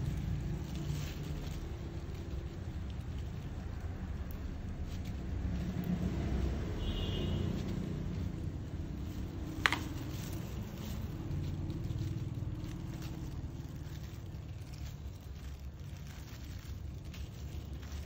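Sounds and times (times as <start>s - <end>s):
low background rumble: 0.0s - 18.0s
brush scraping through hair: 4.7s - 18.0s
brush clicking against plastic tub: 9.4s - 10.3s.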